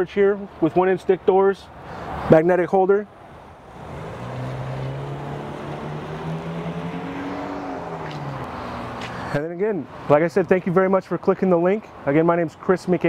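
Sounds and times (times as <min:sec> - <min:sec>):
vehicle engine passing by: 0:03.6 - 0:09.4.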